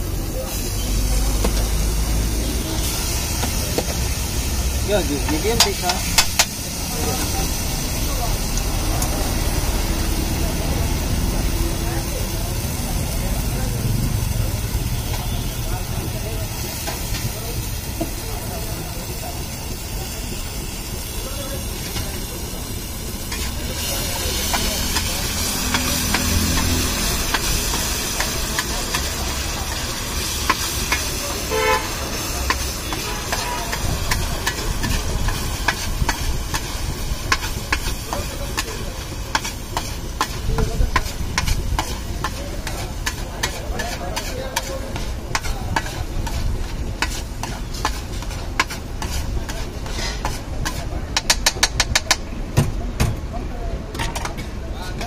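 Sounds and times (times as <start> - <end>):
food sizzling: 0.0 - 52.2
vehicle horn: 31.5 - 32.1, 32.9 - 33.7
metal spatula scraping griddle: 37.3 - 51.4.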